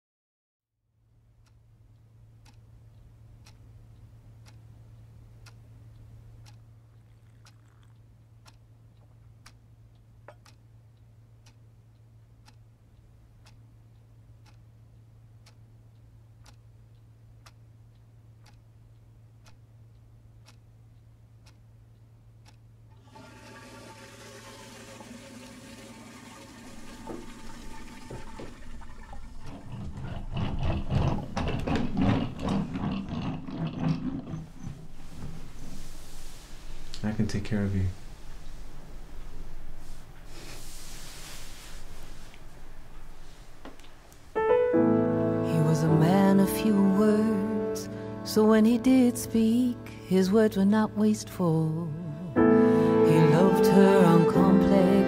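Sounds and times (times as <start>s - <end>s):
low steady hum: 0.8s - 55.0s
clock ticking: 1.4s - 22.9s, 45.7s - 52.5s
hiss with steady tones: 35.5s - 37.0s, 37.9s - 43.6s.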